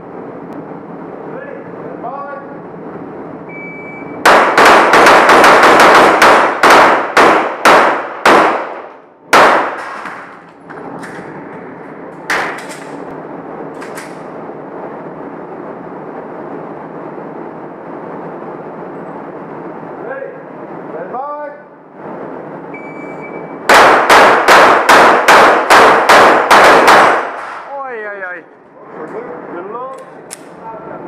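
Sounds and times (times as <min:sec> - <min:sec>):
pistol shots echoing: 0:04.3 - 0:10.3, 0:23.7 - 0:27.7.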